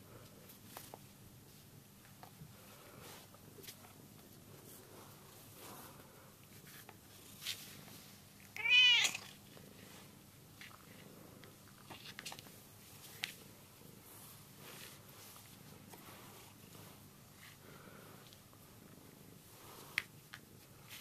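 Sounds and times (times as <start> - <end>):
cat meowing: 8.6 - 9.3.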